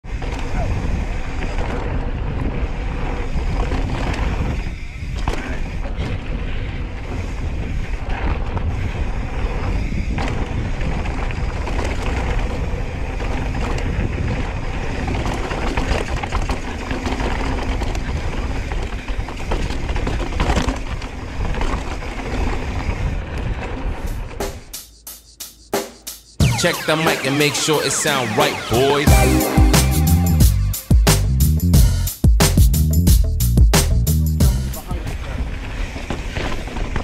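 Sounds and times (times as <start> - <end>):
wind buffeting microphone: 0.1 - 24.4
bike clicks and rattles: 0.1 - 24.7.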